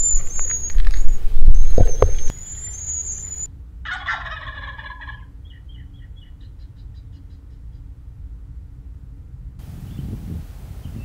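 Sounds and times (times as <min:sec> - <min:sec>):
turkey gobbling: 0:03.9 - 0:05.7.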